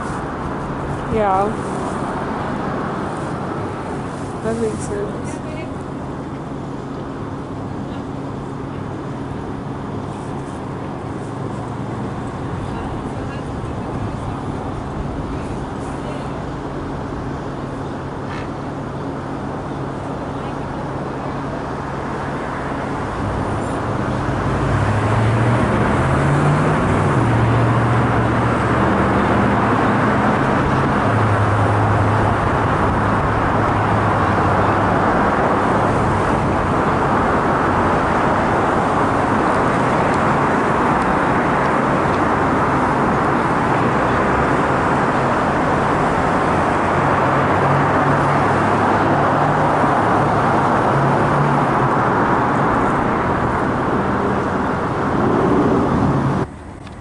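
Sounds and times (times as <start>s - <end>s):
passing vehicle engine hum: 0.0s - 57.0s
road traffic rushing: 0.0s - 57.0s.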